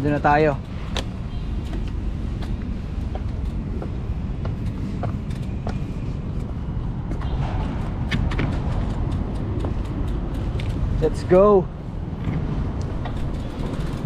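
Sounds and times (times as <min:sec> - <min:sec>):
road rumble: 0:00.0 - 0:14.0
light clicks and rattles: 0:07.7 - 0:11.4, 0:12.2 - 0:14.0.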